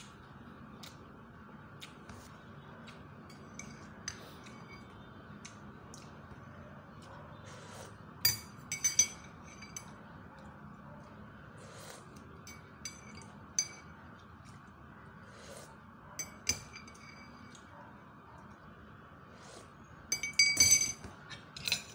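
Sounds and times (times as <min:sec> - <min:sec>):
metal spoon clinking on tableware: 0:08.2 - 0:10.0, 0:12.4 - 0:14.0, 0:16.2 - 0:17.6, 0:20.1 - 0:21.9.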